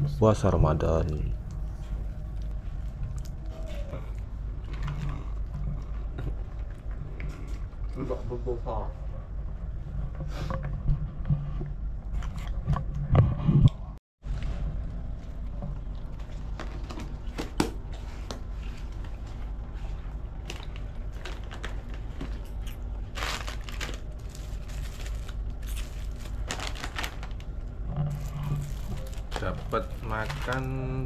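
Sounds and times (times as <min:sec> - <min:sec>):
low engine drone: 0:00.0 - 0:31.0
plastic bags crinkling: 0:20.3 - 0:31.0.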